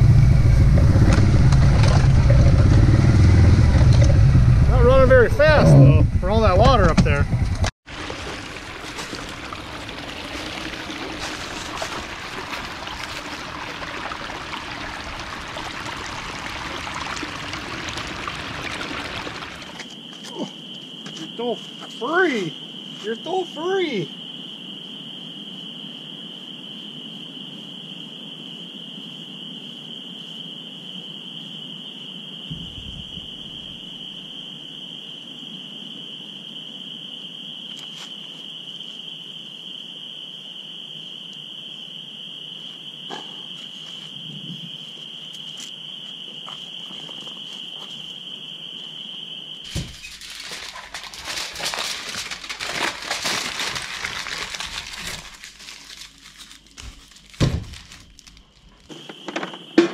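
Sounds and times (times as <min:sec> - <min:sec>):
frogs calling: 0:07.9 - 0:59.9
aluminium foil crumpling: 0:49.7 - 0:58.9.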